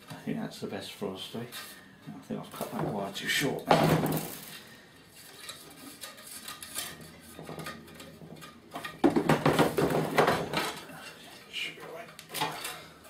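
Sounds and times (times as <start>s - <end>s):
wire scraping and clinking on pot: 4.2s - 9.0s, 10.5s - 13.0s.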